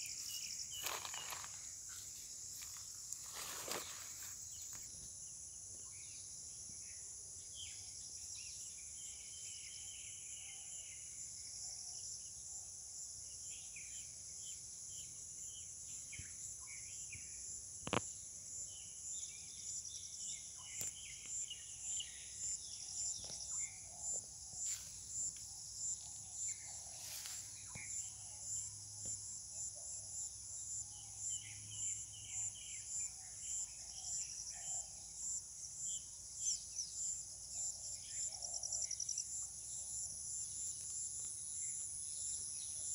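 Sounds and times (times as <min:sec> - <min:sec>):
pulsing insect call: 0:00.0 - 0:05.1
high-pitched insect chorus: 0:00.0 - 0:42.9.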